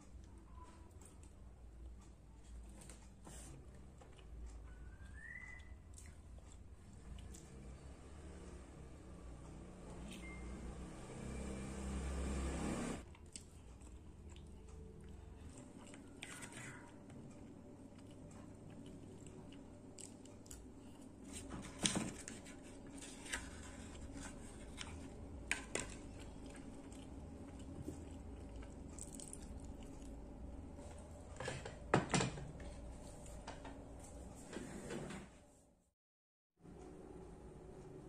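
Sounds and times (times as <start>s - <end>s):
chewing: 0.2s - 7.8s, 13.0s - 21.4s, 22.8s - 31.0s.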